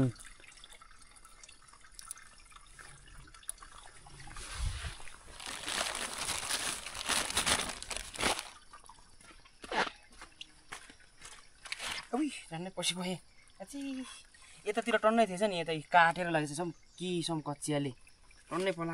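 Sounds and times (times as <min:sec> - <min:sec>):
rustling and splashing: 0:00.0 - 0:12.2
water trickling and dripping: 0:00.0 - 0:18.9.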